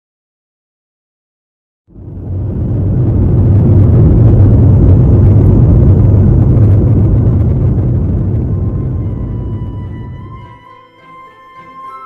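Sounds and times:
jet airliner rumbling on runway: 1.9 - 10.7.

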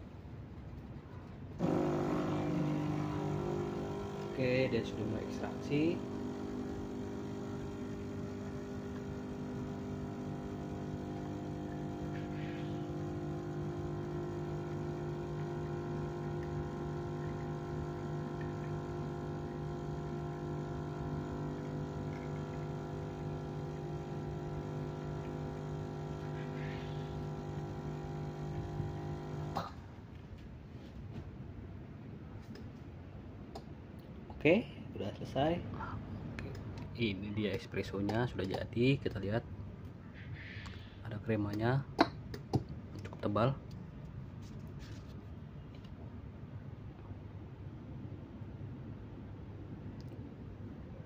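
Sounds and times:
espresso machine pump humming: 1.6 - 29.7.

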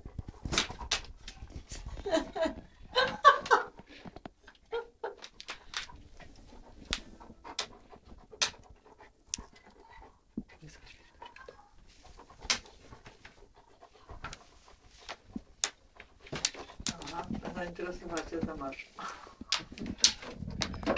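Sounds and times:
animals scuffling: 0.0 - 20.9
dog huffs and breaths: 5.2 - 17.5.

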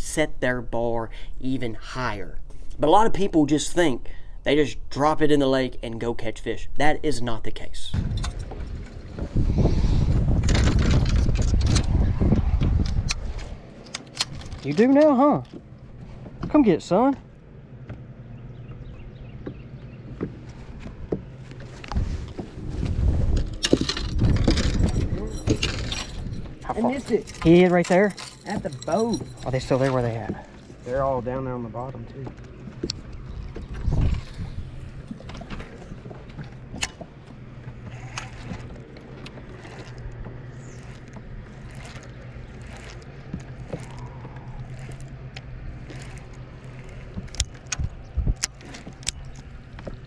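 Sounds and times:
low steady hum: 0.0 - 50.0
electric motor humming: 32.5 - 50.0
fishing reel clicks: 40.6 - 47.8.

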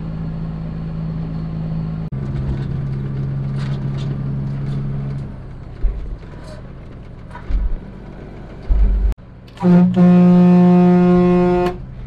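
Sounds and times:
truck cab rumble: 0.0 - 12.0
truck air horn blast: 9.5 - 11.9.

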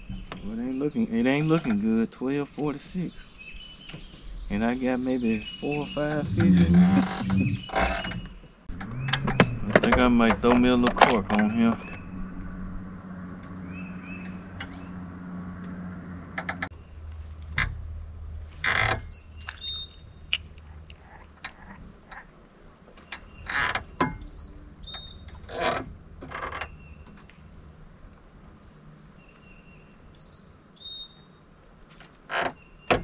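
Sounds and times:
bird chirps: 2.6 - 10.3, 11.2 - 12.4, 13.4 - 15.0, 19.0 - 21.7, 22.9 - 27.7, 29.1 - 31.4
low motor hum: 3.4 - 22.4, 23.3 - 30.0.

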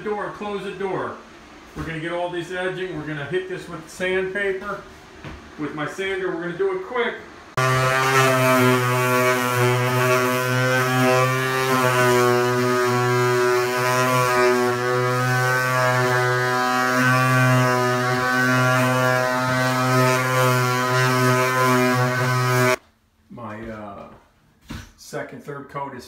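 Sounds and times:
electric sander drone: 7.6 - 22.8.

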